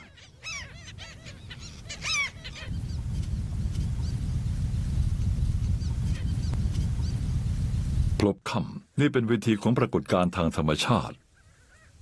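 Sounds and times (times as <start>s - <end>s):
birds honking calls: 0.0s - 3.0s
steady low rumble: 2.7s - 8.2s.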